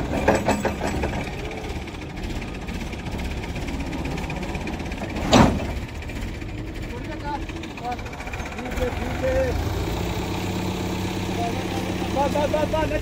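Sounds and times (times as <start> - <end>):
tractor diesel engine running: 0.0 - 13.0
loud bang or clank: 5.2 - 5.8.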